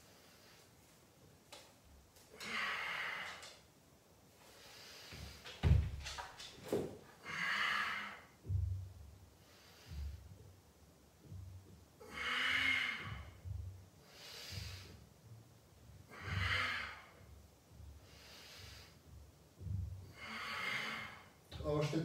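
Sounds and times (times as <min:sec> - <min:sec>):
man breathing hard: 0:02.3 - 0:03.6, 0:04.4 - 0:05.6, 0:07.2 - 0:08.6, 0:09.4 - 0:10.4, 0:12.0 - 0:15.1, 0:15.9 - 0:21.5.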